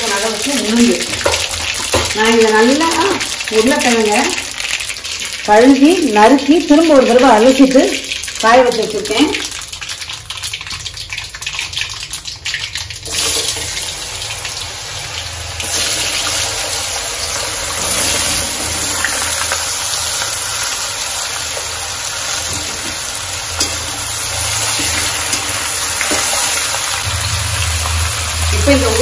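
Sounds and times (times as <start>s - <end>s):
potatoes sizzling in oil: 0.0s - 29.0s
seeds crackling in hot oil: 0.0s - 29.0s.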